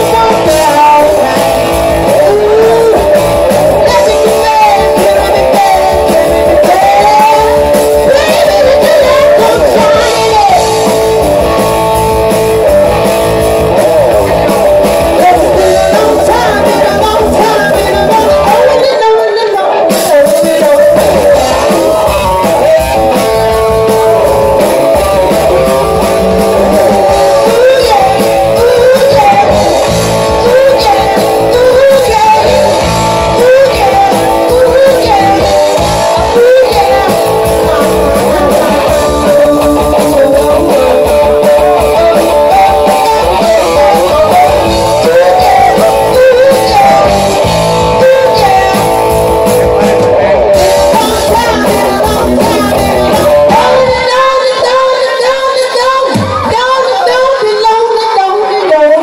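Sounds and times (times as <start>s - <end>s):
woman singing: 0.0s - 10.8s, 15.1s - 49.0s, 50.6s - 59.0s
live rock band playing: 0.0s - 59.0s.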